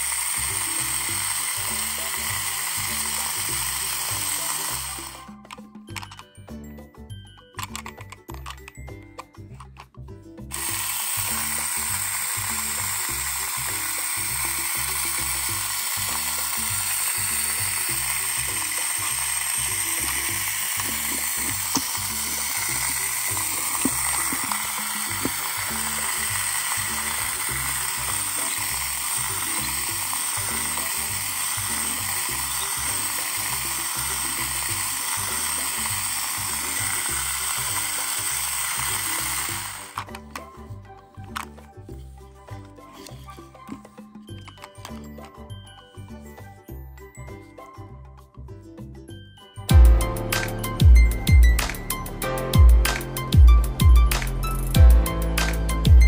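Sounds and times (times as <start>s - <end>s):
toy vacuum cleaner motor whirring: 0.0s - 6.2s, 7.6s - 46.1s.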